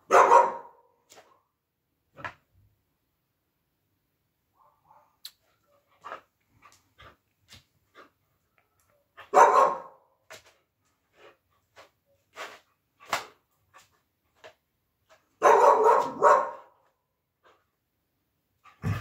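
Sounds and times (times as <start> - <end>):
dog barking: 0.0 - 1.0, 4.6 - 5.9, 9.2 - 10.1, 15.4 - 16.8.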